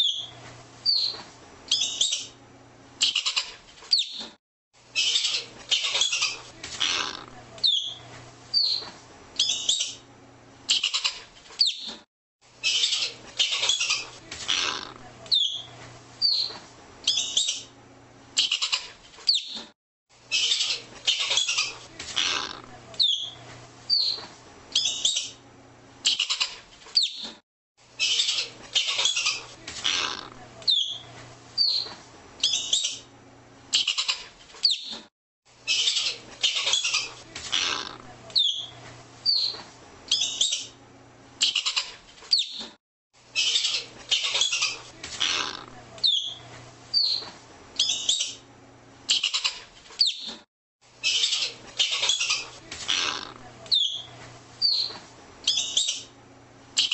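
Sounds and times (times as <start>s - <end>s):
ground squirrel chirps and chatter: 0.0s - 2.3s, 3.0s - 4.3s, 5.0s - 10.0s, 10.7s - 12.0s, 12.6s - 17.7s, 18.4s - 19.6s, 20.3s - 24.2s, 26.1s - 27.3s, 28.0s - 33.0s, 33.8s - 35.0s, 35.7s - 40.7s, 41.4s - 42.7s, 43.4s - 48.4s, 49.1s - 50.4s, 51.0s - 56.1s.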